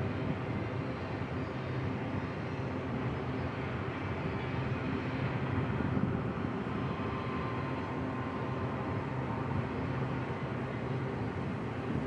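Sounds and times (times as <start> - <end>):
low diesel drone: 0.0 - 12.0.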